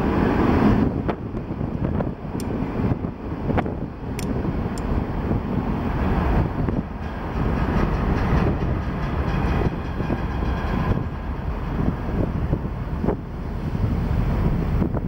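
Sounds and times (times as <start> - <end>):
train rumbling across bridge: 0.0 - 15.0
wind buffeting microphone: 0.0 - 15.0
rhythmic clatter: 7.0 - 11.5.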